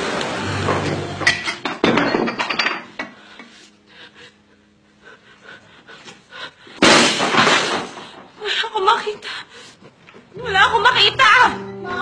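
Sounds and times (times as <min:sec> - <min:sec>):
person gasping breaths: 0:03.1 - 0:06.8.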